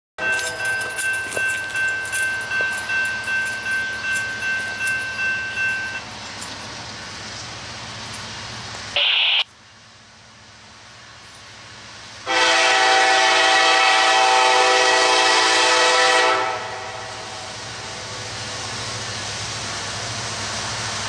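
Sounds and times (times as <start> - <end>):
railroad crossing bell ringing: 0.2 - 6.8.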